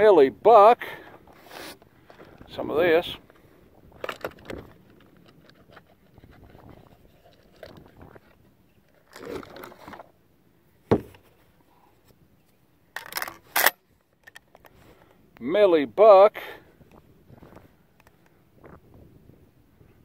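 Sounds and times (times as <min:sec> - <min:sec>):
shotgun shells being loaded: 0:13.0 - 0:14.8.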